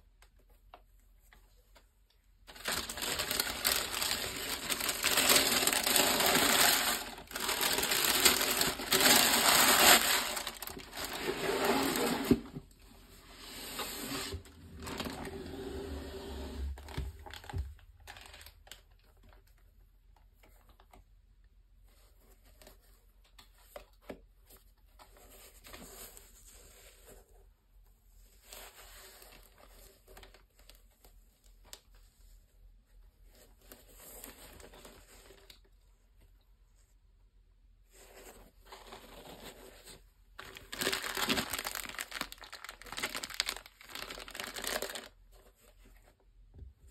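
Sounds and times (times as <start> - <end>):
tissue paper crinkling: 2.4 - 12.5, 13.7 - 15.4, 17.2 - 19.0, 37.9 - 46.2.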